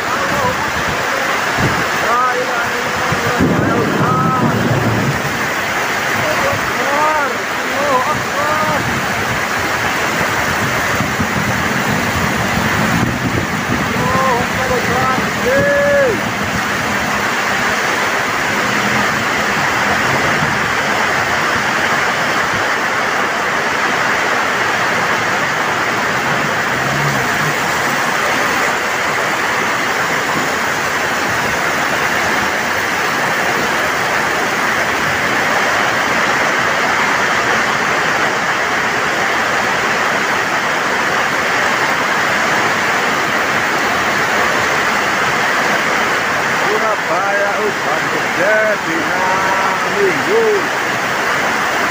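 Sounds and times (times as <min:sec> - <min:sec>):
heavy rain on the road: 0:00.0 - 0:51.9.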